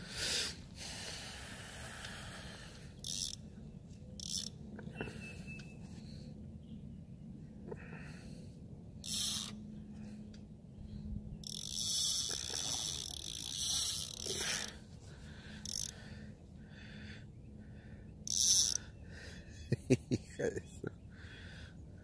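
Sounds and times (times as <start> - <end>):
steady low hum: 0.0 - 22.0
fishing reel buzzing and clicking: 3.0 - 3.4, 4.2 - 4.6, 9.0 - 9.6, 11.4 - 14.8, 15.6 - 16.0, 18.2 - 18.9.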